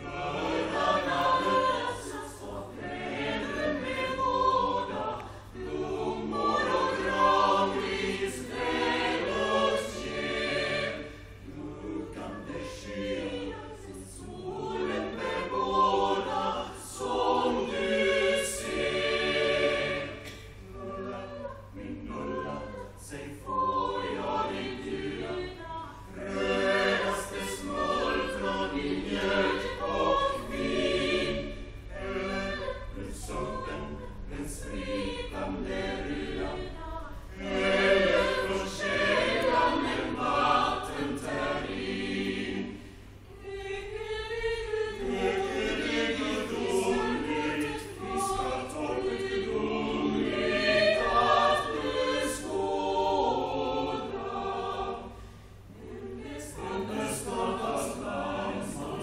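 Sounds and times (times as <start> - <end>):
vocal ensemble singing in harmony: 0.0 - 59.0
singers breathing: 42.7 - 43.3, 55.1 - 55.6.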